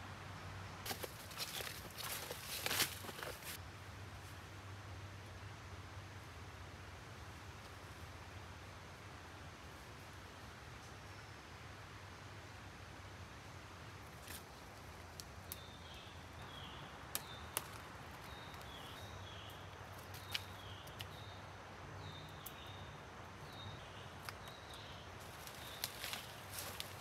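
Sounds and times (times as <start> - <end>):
footsteps rustling through undergrowth: 0.9 - 3.6, 25.2 - 27.0
plant stems snapping: 17.1 - 18.7, 25.3 - 27.0.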